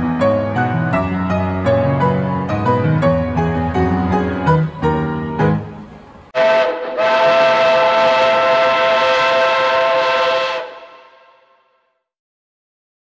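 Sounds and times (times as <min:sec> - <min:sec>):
piano notes ringing: 0:00.0 - 0:09.1
train whistle blast: 0:06.4 - 0:12.0.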